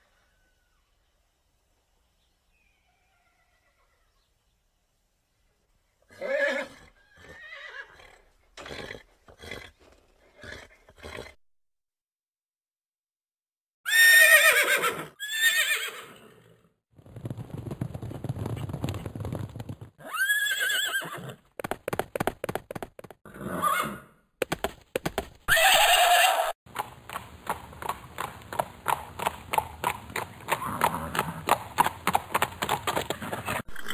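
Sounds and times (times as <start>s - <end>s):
horses whinnying: 6.1s - 9.8s, 13.9s - 16.4s, 20.0s - 21.4s, 25.5s - 26.6s, 32.9s - 33.9s
hoofbeats clopping: 17.0s - 23.2s, 24.4s - 26.0s, 26.7s - 33.9s.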